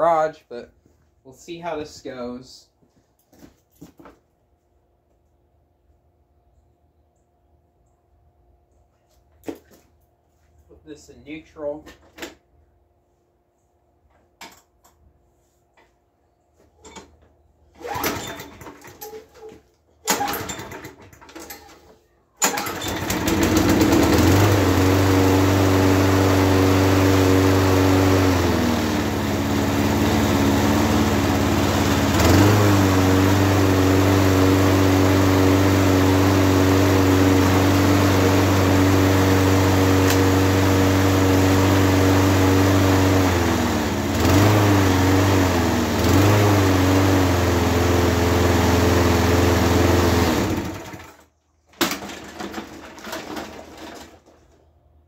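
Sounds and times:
lawn mower engine running: 0:17.0 - 0:54.7
starter rope pulls: 0:17.7 - 0:21.6.

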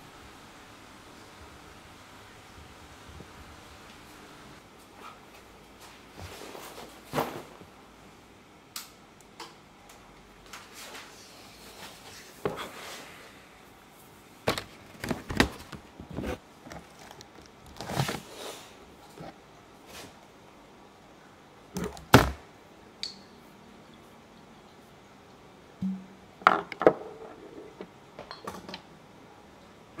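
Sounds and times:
faint steady hiss: 0:00.0 - 0:30.0
objects knocking and clicking: 0:25.8 - 0:28.8.

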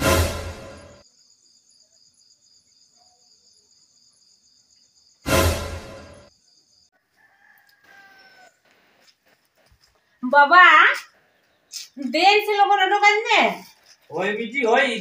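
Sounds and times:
heavy cinematic boom: 0:00.0 - 0:01.0, 0:05.3 - 0:06.3
rooster crowing: 0:06.9 - 0:08.7.

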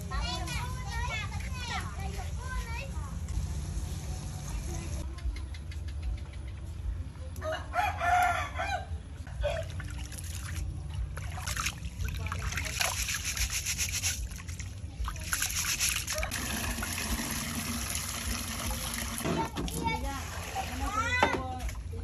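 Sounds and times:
rooster crowing: 0:07.4 - 0:09.0
hands washing rice in water: 0:09.6 - 0:22.0.

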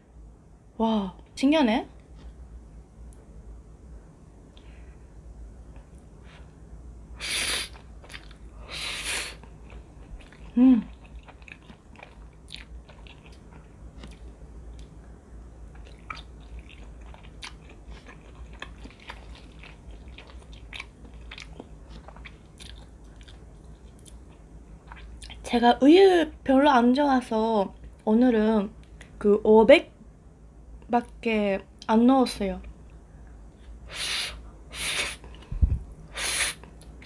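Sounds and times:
wet chewing: 0:07.6 - 0:08.5, 0:09.4 - 0:15.0, 0:15.6 - 0:25.4
person humming: 0:10.5 - 0:10.9.

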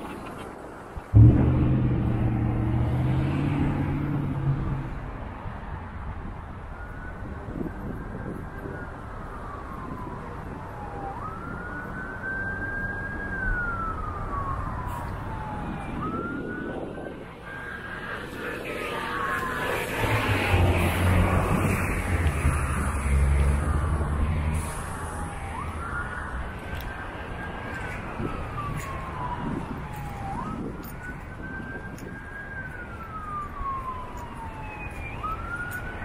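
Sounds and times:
street traffic: 0:00.0 - 0:36.0
low engine hum: 0:01.0 - 0:05.6
siren wailing: 0:01.1 - 0:36.0.

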